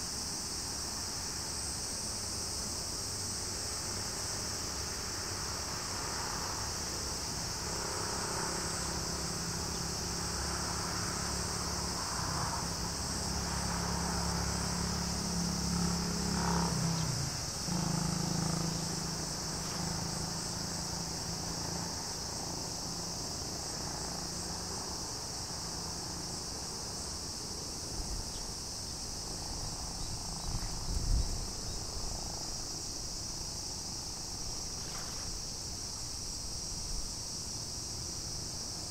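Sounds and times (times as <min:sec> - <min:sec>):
insect chorus buzzing: 0:00.0 - 0:38.9
low engine hum: 0:07.6 - 0:23.3.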